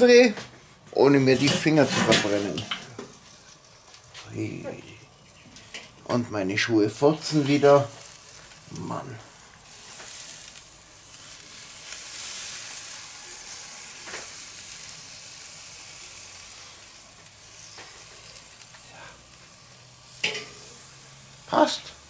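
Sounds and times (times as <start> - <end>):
meat sizzling on grill: 0.0 - 22.0
metal clicking on grill grate: 5.5 - 6.1, 16.0 - 21.4.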